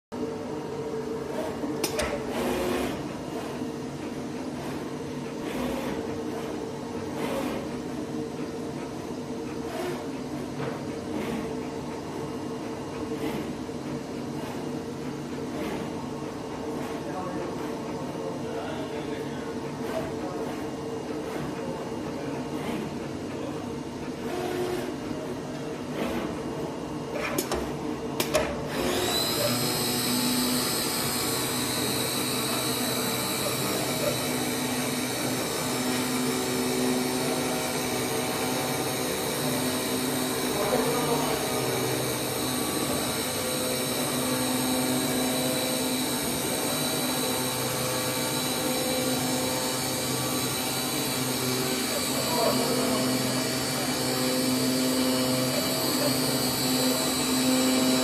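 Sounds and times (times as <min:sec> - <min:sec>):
machine clicks: 0:01.8 - 0:02.8.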